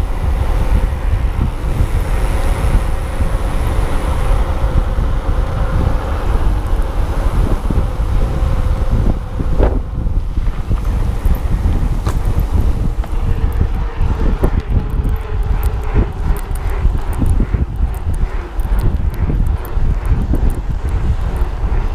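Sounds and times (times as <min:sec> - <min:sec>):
thin steady whine: 0:00.0 - 0:21.9
tyres rolling on road: 0:00.0 - 0:21.9
wind rumbling on microphone: 0:00.0 - 0:21.9.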